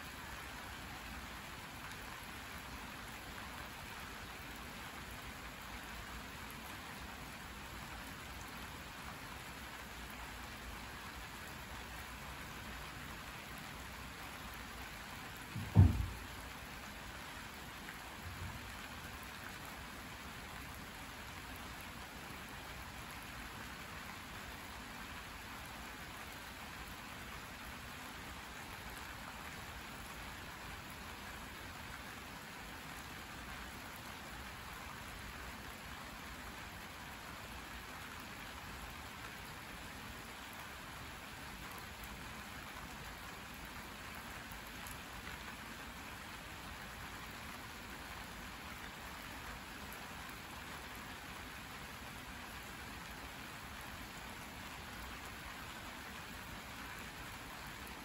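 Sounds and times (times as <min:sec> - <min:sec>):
steady rain falling: 0:00.0 - 0:58.0
low thump: 0:15.5 - 0:16.3.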